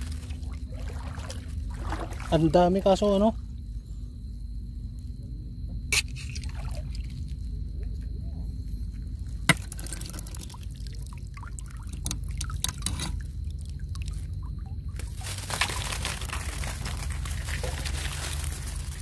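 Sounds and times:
shallow water splashing: 0.0s - 3.6s, 6.0s - 7.5s, 9.3s - 19.0s.

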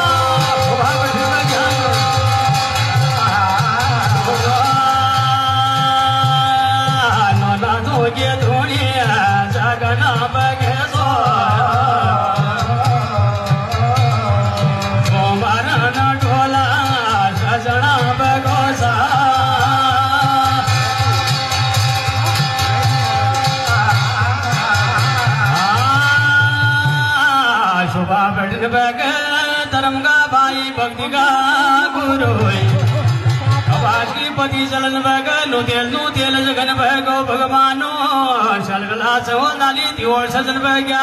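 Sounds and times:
man singing a chant: 0.0s - 21.5s, 22.3s - 32.8s, 33.7s - 41.0s
hand drum beating: 0.0s - 27.1s, 32.0s - 36.2s.

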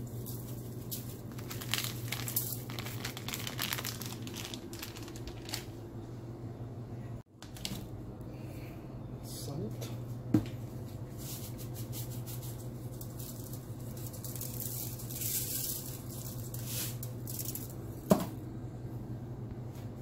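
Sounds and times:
aluminium foil crinkling: 0.0s - 5.8s, 11.4s - 17.8s
steady low hum: 0.0s - 20.0s.

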